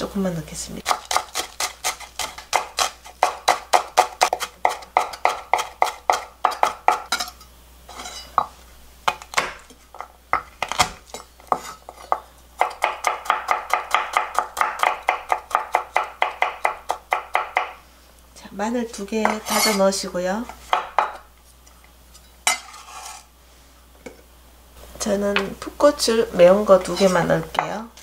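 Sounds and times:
knife chopping on wooden board: 0:00.8 - 0:07.1, 0:09.1 - 0:09.7, 0:10.4 - 0:17.8, 0:20.7 - 0:21.2.

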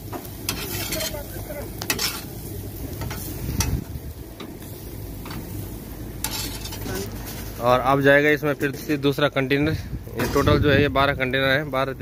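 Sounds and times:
chicken sizzling on grill: 0:00.0 - 0:12.0
metal spatula scraping grate: 0:00.5 - 0:01.3, 0:01.9 - 0:02.3, 0:06.2 - 0:07.7.

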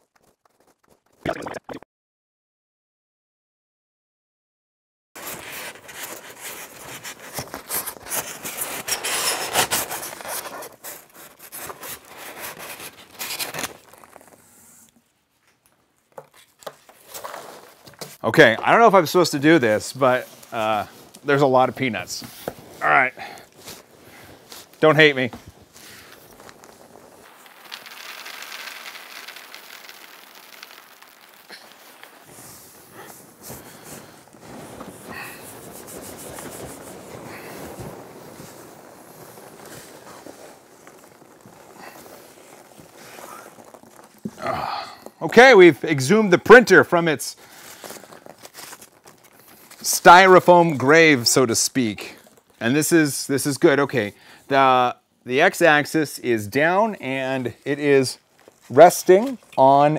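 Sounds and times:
styrofoam rubbing on cardboard: 0:05.2 - 0:14.8, 0:23.4 - 0:44.4
foam packing rustling: 0:05.2 - 0:53.2, 0:56.6 - 0:59.9.

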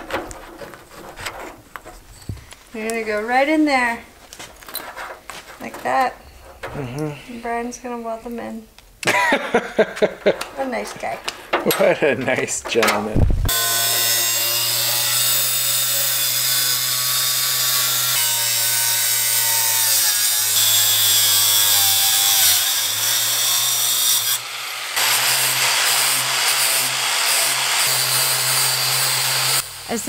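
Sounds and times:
angle grinder grinding metal: 0:13.5 - 0:30.0.

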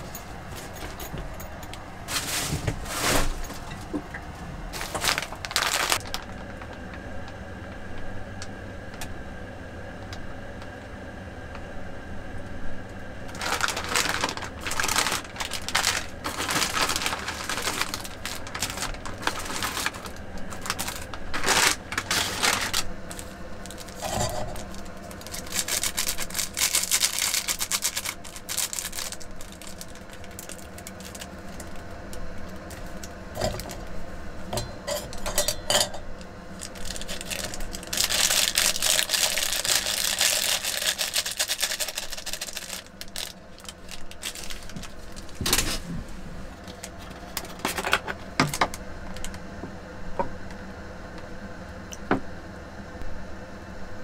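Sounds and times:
food packets crinkling: 0:04.7 - 0:07.0, 0:13.3 - 0:33.9, 0:36.2 - 0:45.8, 0:46.6 - 0:49.4
sachet tearing open: 0:04.8 - 0:06.3, 0:13.3 - 0:31.8, 0:36.6 - 0:45.4.

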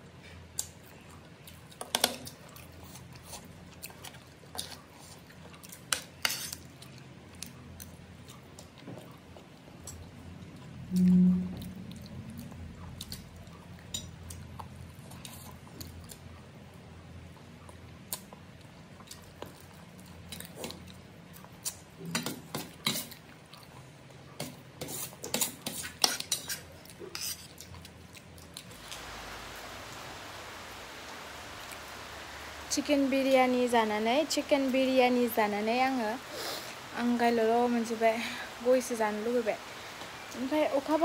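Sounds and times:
steady hiss: 0:28.7 - 0:41.0.

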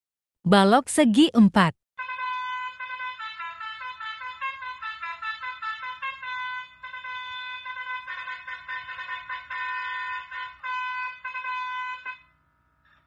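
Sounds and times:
multi-tone horn playing a tune: 0:02.0 - 0:12.4.

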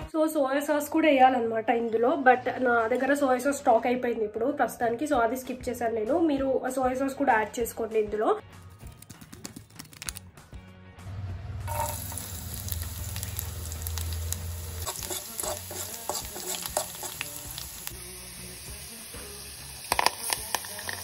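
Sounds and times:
garlic sizzling in hot oil: 0:11.7 - 0:21.0.

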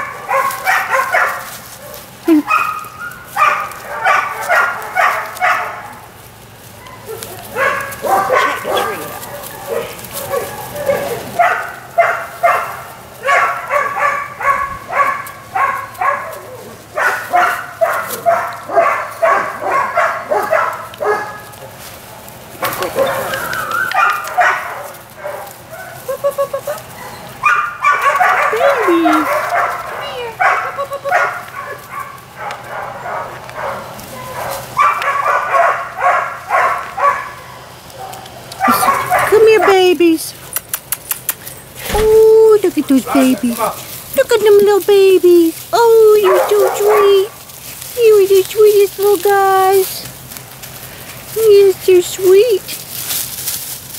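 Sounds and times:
puppy yipping: 0:00.0 - 0:06.0, 0:06.8 - 0:21.4, 0:22.6 - 0:43.7, 0:46.2 - 0:47.4.

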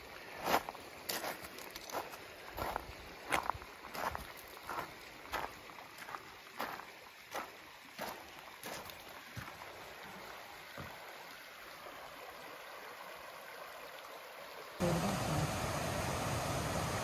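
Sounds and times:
small stream running: 0:00.0 - 0:17.0
loud steady rushing noise: 0:14.8 - 0:17.0.

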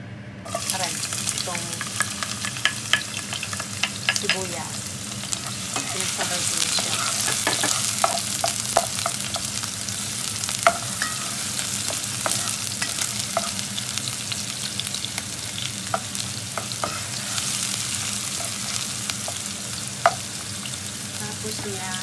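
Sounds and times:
onion and garlic sizzling in oil: 0:00.4 - 0:22.0
spatula scraping a pan: 0:05.4 - 0:09.5, 0:10.7 - 0:13.6, 0:16.6 - 0:17.7.

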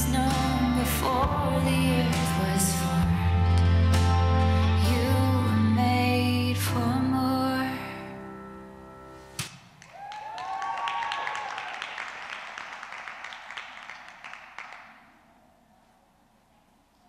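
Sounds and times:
audience clapping and cheering: 0:09.6 - 0:15.4.

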